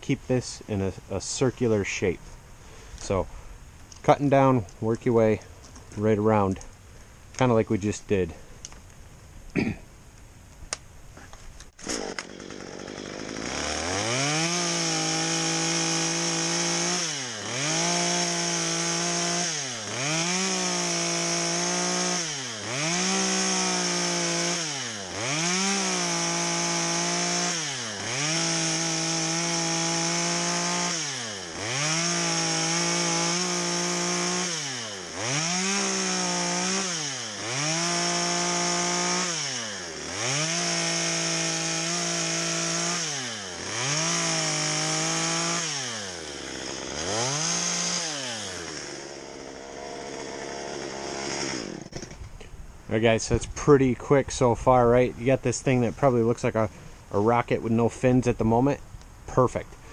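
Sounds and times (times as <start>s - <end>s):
chainsaw cutting into log: 11.6s - 52.4s.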